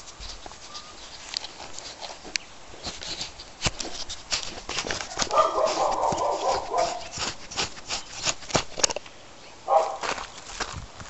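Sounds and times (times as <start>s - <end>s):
dog crying: 5.1s - 7.1s
bicycle clicks and rattles: 8.2s - 9.1s.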